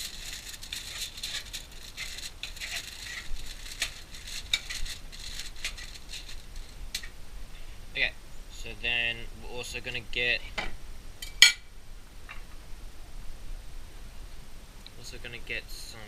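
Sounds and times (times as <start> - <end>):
knife spreading butter: 0.0 - 6.8
aluminium foil crinkling: 0.0 - 7.2.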